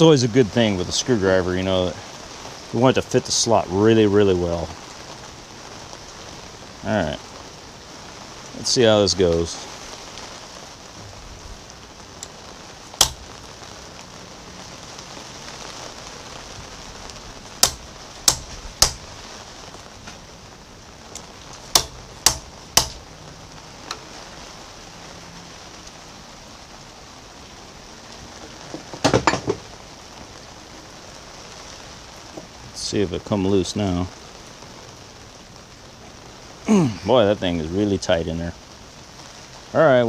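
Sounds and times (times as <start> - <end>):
hammer striking impact driver: 13.0 - 13.2, 17.6 - 19.0, 21.7 - 23.0.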